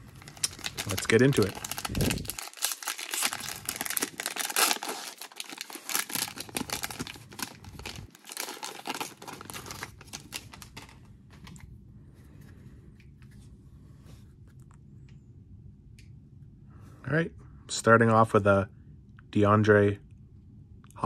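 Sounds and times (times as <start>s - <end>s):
plastic wrapper crinkling: 0.0s - 11.6s.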